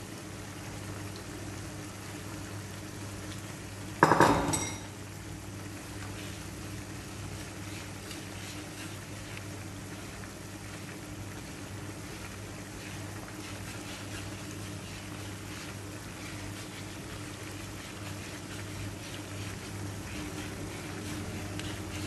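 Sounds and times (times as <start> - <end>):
pan simmering with bubbling hiss: 0.0 - 22.0.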